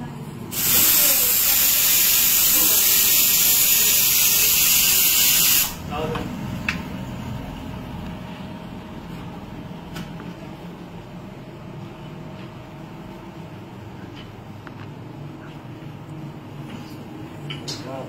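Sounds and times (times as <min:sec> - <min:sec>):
low room rumble: 0:00.0 - 0:00.5, 0:05.8 - 0:18.0.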